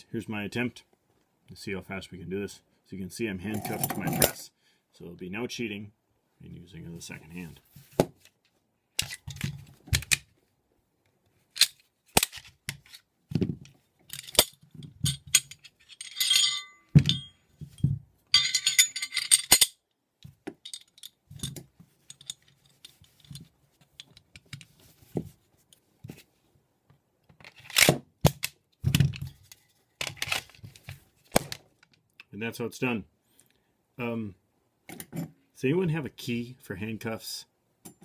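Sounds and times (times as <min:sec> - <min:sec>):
parts set down on a mat: 0:07.7 - 0:08.3, 0:11.6 - 0:15.6, 0:16.9 - 0:18.7
pistol parts clicking and clacking: 0:09.0 - 0:10.3, 0:11.5 - 0:17.4, 0:18.4 - 0:24.7, 0:27.4 - 0:28.6
metal parts rattling: 0:14.1 - 0:19.8, 0:20.6 - 0:24.6.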